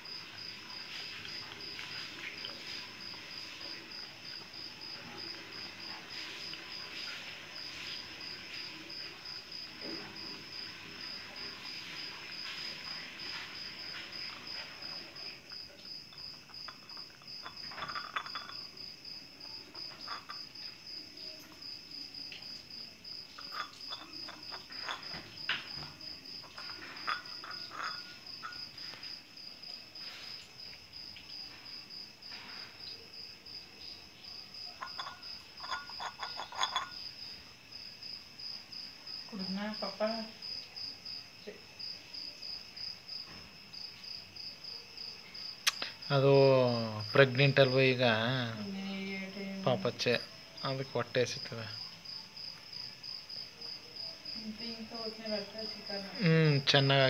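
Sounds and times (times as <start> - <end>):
insect chirping: 0.0 - 57.0
cat eating from glass bowl: 13.9 - 18.9, 23.4 - 25.2, 26.4 - 29.0, 34.7 - 37.1.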